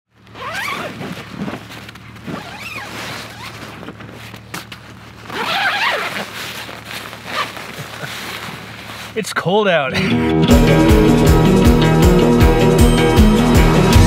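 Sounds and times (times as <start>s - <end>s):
tent fabric rustling: 0.1s - 9.4s
tent zipper pulled open: 0.2s - 9.2s.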